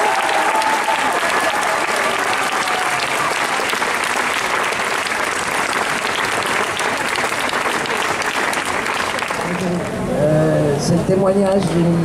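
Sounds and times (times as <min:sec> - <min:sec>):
crowd applauding: 0:00.0 - 0:10.1.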